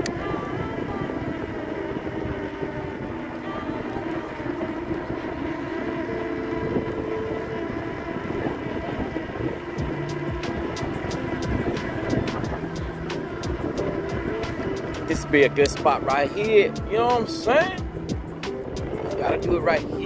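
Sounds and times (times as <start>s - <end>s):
constant hum: 0.0s - 20.0s
tyre and wind rumble: 0.0s - 20.0s.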